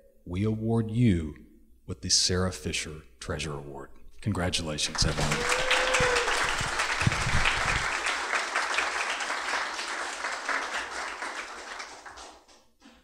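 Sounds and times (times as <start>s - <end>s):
audience applauding: 4.9s - 12.7s.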